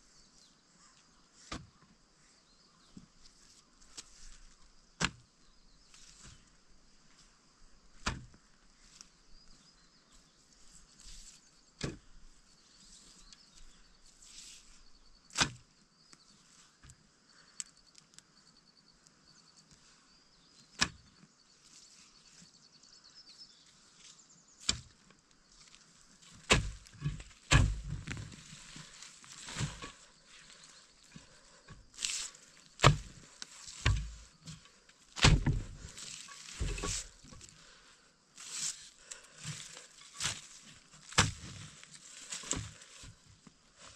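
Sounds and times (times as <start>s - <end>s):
blade chopping on wood: 26.4s - 28.0s, 32.8s - 33.2s, 33.8s - 34.2s, 35.2s - 35.9s, 41.1s - 41.4s.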